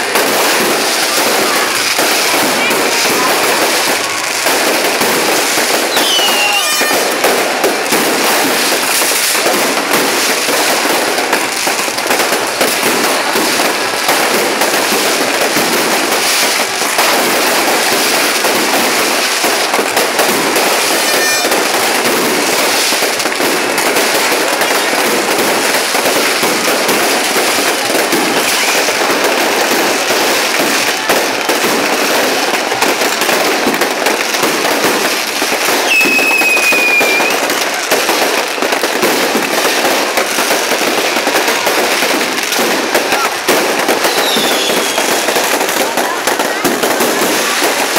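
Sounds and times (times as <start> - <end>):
fireworks crackling and popping: 0.0 - 47.9
high firework whistle: 5.7 - 7.4, 20.8 - 21.8, 35.8 - 37.6, 44.0 - 45.4.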